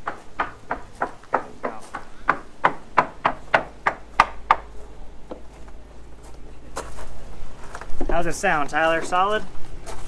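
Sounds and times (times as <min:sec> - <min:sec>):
hammer knocking on hollow hull: 0:00.0 - 0:04.7.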